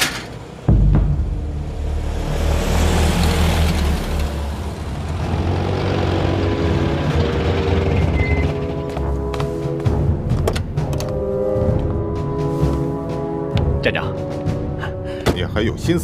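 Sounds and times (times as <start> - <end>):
car engine rumble: 0.0 - 9.6
soft music: 6.1 - 16.0.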